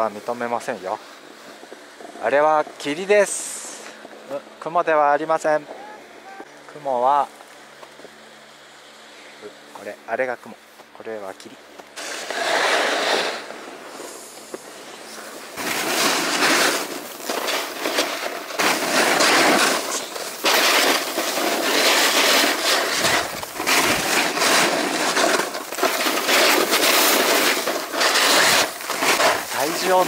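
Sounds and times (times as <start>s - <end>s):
snowboard scraping over snow: 12.0s - 30.0s.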